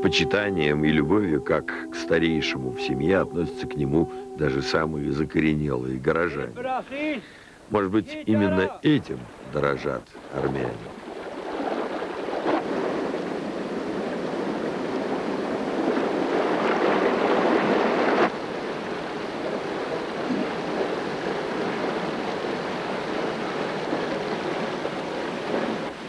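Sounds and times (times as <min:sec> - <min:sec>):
water rushing down wooden chute: 0:08.1 - 0:26.0.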